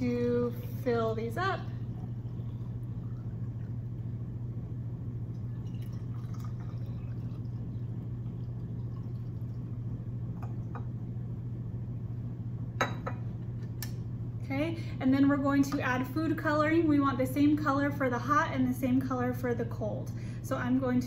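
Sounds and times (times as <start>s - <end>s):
water trickling into bottles: 5.3s - 9.8s.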